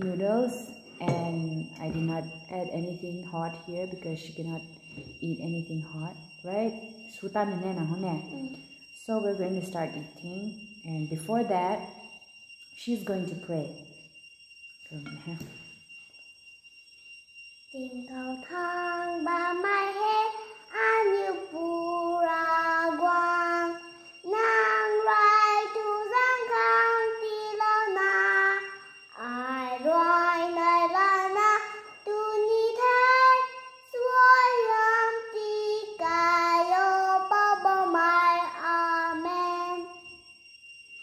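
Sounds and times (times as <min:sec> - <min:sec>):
girl singing unaccompanied: 0:00.0 - 0:04.6, 0:17.8 - 0:40.0.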